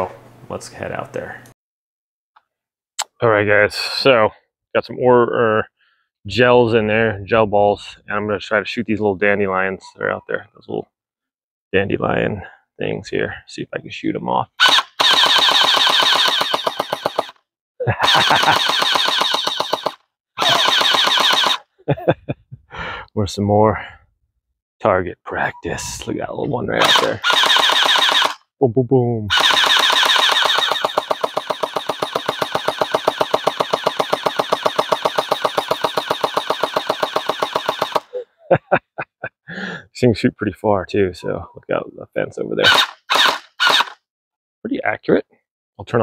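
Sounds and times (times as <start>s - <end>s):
gel blaster rapid fire rattle: 14.6s - 17.4s, 18.0s - 21.7s, 26.8s - 28.4s, 29.3s - 38.1s, 42.7s - 44.0s
sharp clicks: 14.6s - 17.4s, 18.0s - 21.6s, 26.8s - 28.4s, 29.3s - 38.1s, 42.7s - 44.0s.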